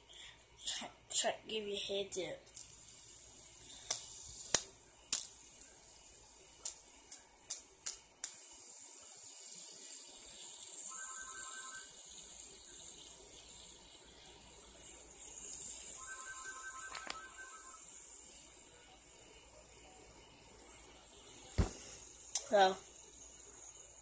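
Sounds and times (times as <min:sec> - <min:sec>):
fidget spinner whirring: 0:02.5 - 0:24.0
fidget spinner clicks: 0:03.8 - 0:05.7, 0:06.6 - 0:08.4.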